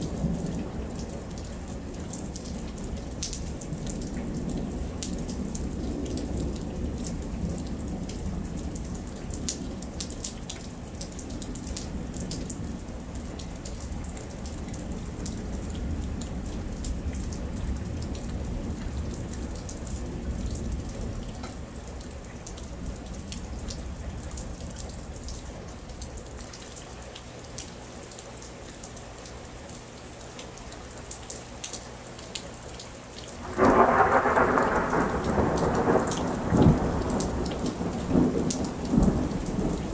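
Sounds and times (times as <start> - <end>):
rain on pavement: 0.0 - 39.9
water drips ticking: 0.0 - 39.9
loud thunder clap: 33.4 - 39.9
low thunder rumble: 33.4 - 39.9.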